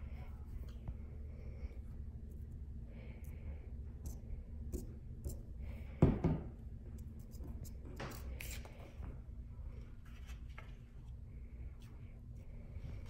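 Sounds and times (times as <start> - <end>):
low room hum: 0.0 - 13.0
paper rustling: 10.0 - 11.0.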